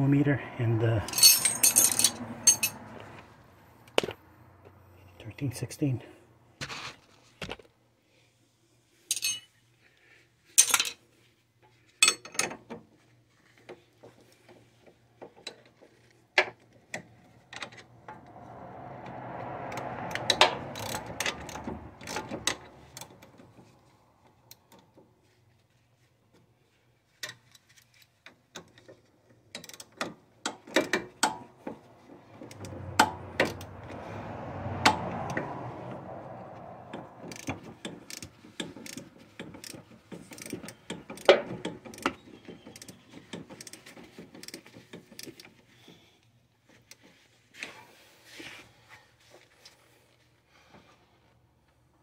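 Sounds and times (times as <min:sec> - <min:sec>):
metal tools clinking: 0:01.0 - 0:02.8, 0:09.1 - 0:09.5
rising and falling noise: 0:17.6 - 0:23.4.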